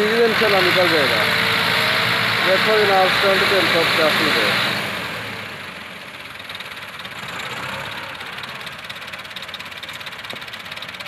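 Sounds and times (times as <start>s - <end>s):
diesel tractor engine idling: 0.0s - 11.0s.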